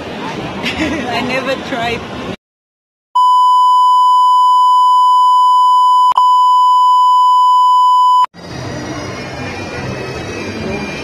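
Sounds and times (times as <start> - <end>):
high-pitched electronic beep: 3.2 - 8.3.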